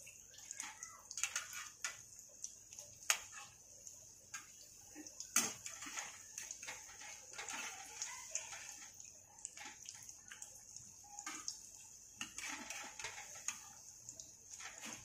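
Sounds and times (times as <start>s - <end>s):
food deep-frying in oil: 0.0s - 15.0s
crackles and pops of oil: 0.1s - 15.0s.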